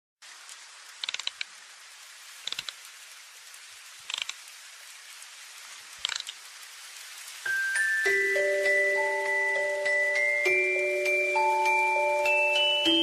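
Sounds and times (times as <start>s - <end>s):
steady hiss: 0.2s - 13.0s.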